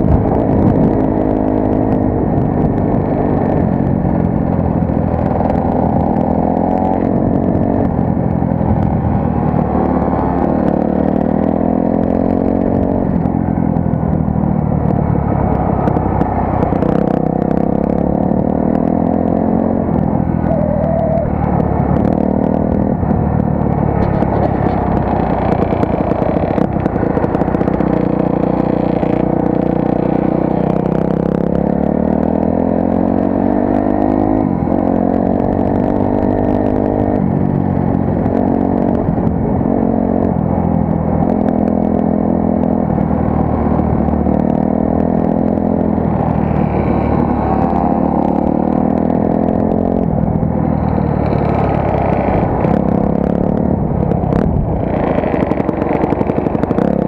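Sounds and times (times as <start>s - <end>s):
motorcycle engine revving: 0.0s - 57.0s.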